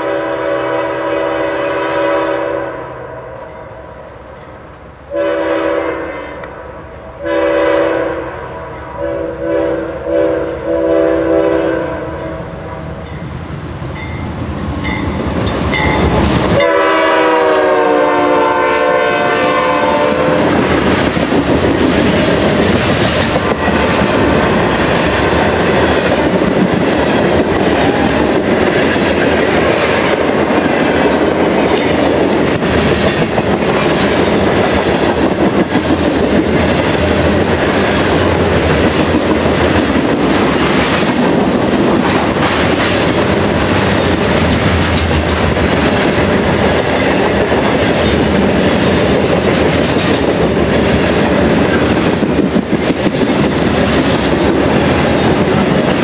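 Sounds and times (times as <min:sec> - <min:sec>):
freight train rolling past: 0:00.0 - 0:56.0
wheels clacking over rail joints: 0:20.4 - 0:56.0.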